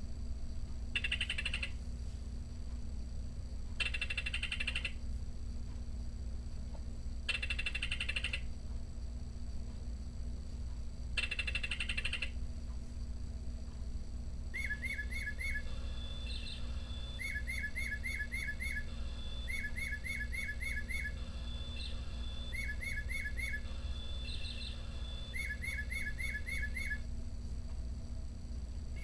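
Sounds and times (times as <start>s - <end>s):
recorded bird song from speaker: 0.9s - 1.8s, 3.8s - 5.0s, 7.2s - 8.5s, 11.2s - 12.4s, 14.5s - 27.2s.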